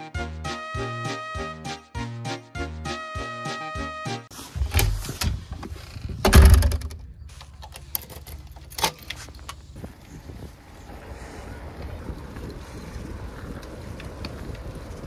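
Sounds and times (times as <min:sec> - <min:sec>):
front door opening and shutting: 0:04.3 - 0:09.3
wind on microphone: 0:04.6 - 0:07.3, 0:09.7 - 0:15.0
bicycle rolling over brick paving: 0:09.1 - 0:15.0.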